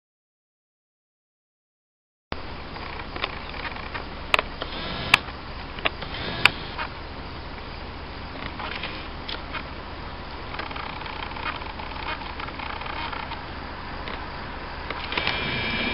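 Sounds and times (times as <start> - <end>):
distant traffic: 2.3 - 15.9
steady low hum: 2.3 - 15.9
sharp clicks: 2.8 - 7.0, 10.5 - 13.4, 14.0 - 14.3, 14.9 - 15.9.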